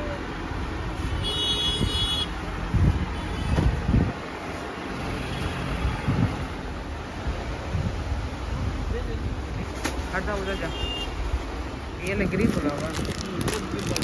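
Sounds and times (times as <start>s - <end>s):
road traffic rumble: 0.0s - 14.0s
market bustle: 8.7s - 14.0s.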